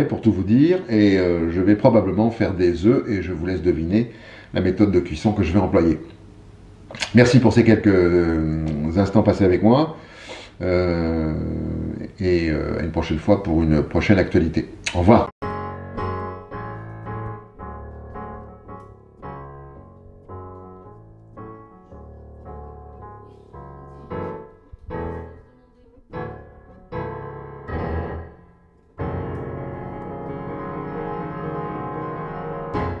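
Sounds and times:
piano notes and chords: 0:00.0 - 0:04.0, 0:15.4 - 0:33.0.

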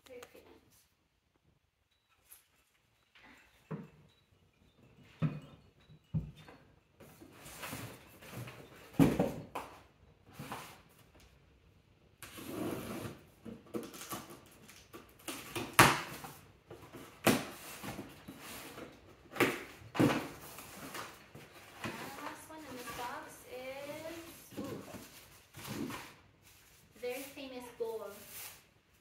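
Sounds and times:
cardboard rustling and scraping: 0:16.7 - 0:28.7.

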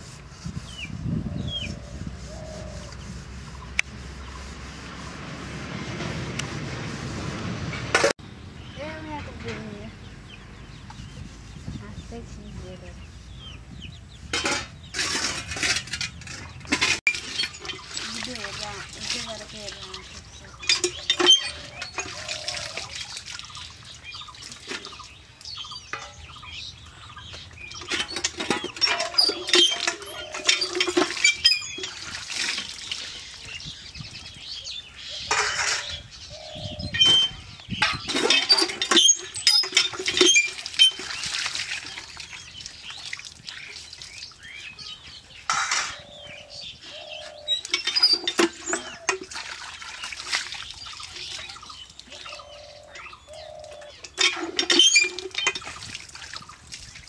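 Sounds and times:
metal plates clinking and scraping: 0:14.3 - 0:18.4, 0:20.6 - 0:22.9, 0:25.7 - 0:26.7, 0:27.3 - 0:32.7, 0:35.1 - 0:36.2, 0:36.9 - 0:41.2, 0:45.4 - 0:46.3, 0:47.4 - 0:49.3, 0:53.3 - 0:55.8
pump handle squeaking: 0:14.4 - 0:23.0, 0:27.7 - 0:32.7, 0:35.3 - 0:36.1, 0:36.8 - 0:42.0, 0:47.5 - 0:49.4, 0:53.7 - 0:55.9
water splashing onto stones: 0:15.0 - 0:26.3, 0:27.3 - 0:33.8, 0:37.2 - 0:44.8, 0:47.5 - 0:52.5, 0:53.8 - 0:57.0.

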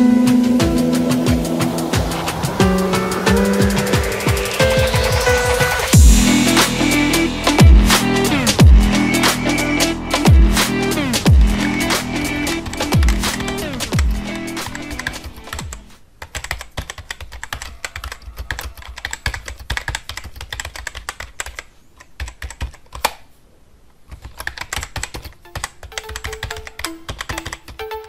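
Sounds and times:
music: 0:00.0 - 0:15.9, 0:25.4 - 0:28.0
rapid keyboard typing clicks: 0:12.7 - 0:23.2, 0:24.1 - 0:28.0.

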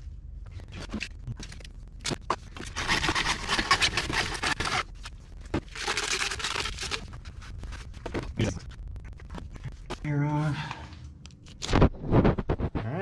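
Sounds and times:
plastic pipe scraping: 0:02.2 - 0:05.0.

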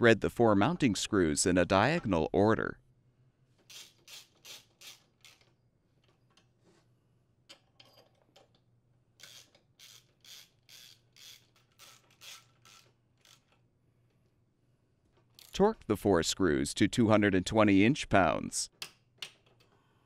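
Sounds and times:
screws scraping into metal: 0:03.7 - 0:05.5, 0:09.2 - 0:13.6
hand ratchet clicking: 0:03.7 - 0:05.6, 0:09.2 - 0:13.6.

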